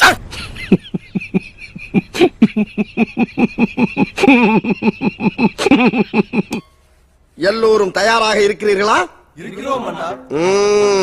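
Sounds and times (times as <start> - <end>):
man giggling: 0.1 - 6.6.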